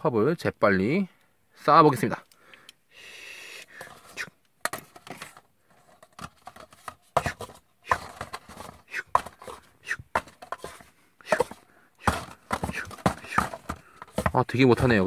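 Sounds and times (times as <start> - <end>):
paper cups tapping and clacking: 3.7 - 15.0
paper rustle: 3.8 - 15.0.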